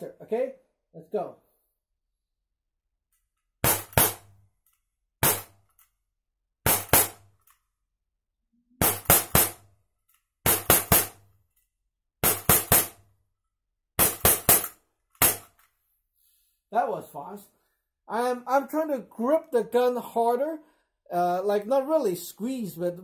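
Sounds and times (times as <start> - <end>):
air pistol shots: 3.6 - 4.4, 5.2 - 5.6, 6.6 - 7.4, 8.8 - 9.7, 10.4 - 11.2, 12.2 - 13.0, 14.0 - 15.6.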